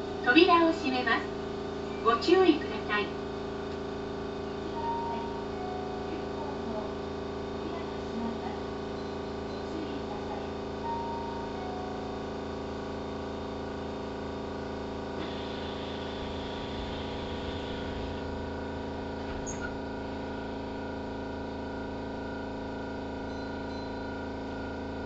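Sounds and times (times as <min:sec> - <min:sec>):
train electrical hum: 0:00.0 - 0:25.0
low rumble: 0:15.8 - 0:20.5.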